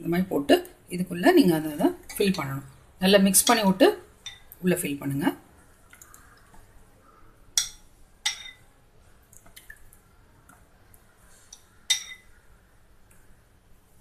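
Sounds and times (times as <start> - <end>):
steel spoon clinking: 4.2 - 4.5, 7.6 - 8.6, 11.5 - 12.3
soft drips: 5.5 - 13.4.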